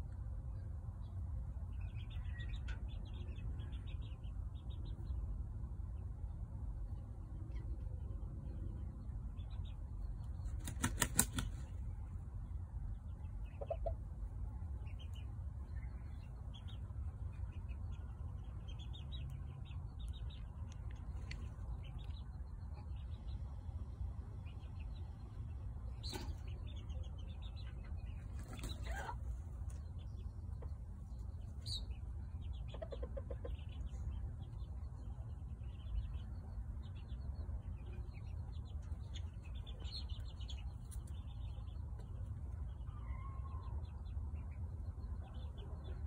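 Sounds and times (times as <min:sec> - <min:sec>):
low steady rumble: 0:00.0 - 0:10.7, 0:11.4 - 0:46.0
small birds chirping: 0:00.0 - 0:46.0
rooster flapping wings: 0:10.6 - 0:11.7.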